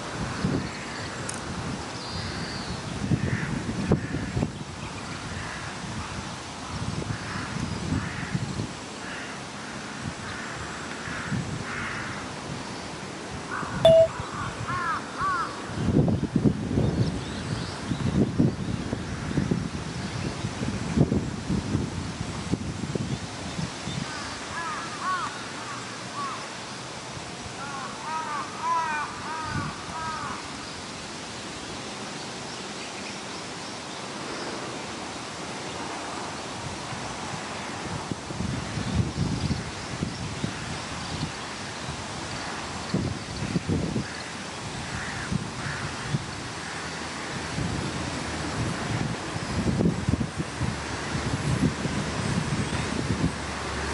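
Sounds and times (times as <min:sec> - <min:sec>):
wind rumble on microphone: 0:00.0 - 0:24.8, 0:33.9 - 0:53.9
crows cawing: 0:10.3 - 0:12.2, 0:14.4 - 0:15.6, 0:24.6 - 0:26.4, 0:27.6 - 0:30.4, 0:44.9 - 0:46.9
short steady beep: 0:13.9 - 0:14.1
bird calling: 0:13.9 - 0:15.4.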